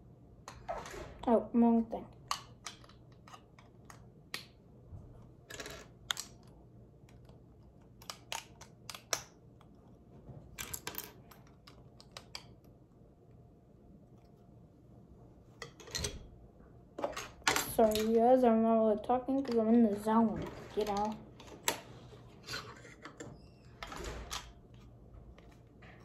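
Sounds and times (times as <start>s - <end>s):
plastic pieces clicking and clattering: 2.2s - 4.6s, 5.4s - 6.5s, 7.1s - 9.7s, 10.6s - 12.6s, 17.0s - 18.2s.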